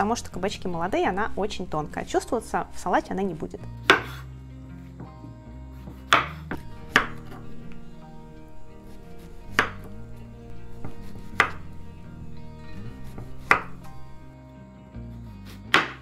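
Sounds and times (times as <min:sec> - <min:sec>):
soft background music: 0:00.0 - 0:16.0
knife striking wooden cutting board: 0:03.9 - 0:04.2, 0:05.9 - 0:07.4, 0:09.5 - 0:10.0, 0:10.8 - 0:11.7, 0:13.1 - 0:13.9, 0:15.7 - 0:16.0.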